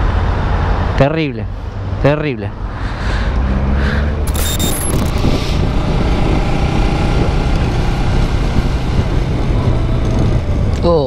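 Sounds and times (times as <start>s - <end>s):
wind and road noise: 0.0s - 11.0s
motorcycle engine running: 4.3s - 10.8s.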